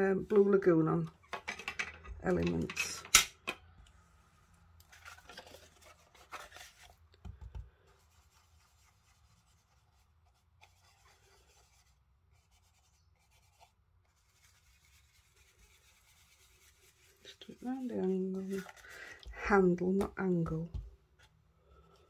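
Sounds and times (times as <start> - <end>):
brush scratching over card: 7.8 - 19.0.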